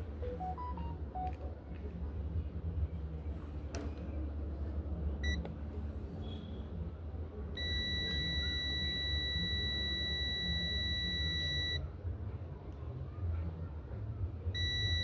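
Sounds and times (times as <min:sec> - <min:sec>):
multimeter continuity beep: 0:07.6 - 0:11.8, 0:14.6 - 0:15.0.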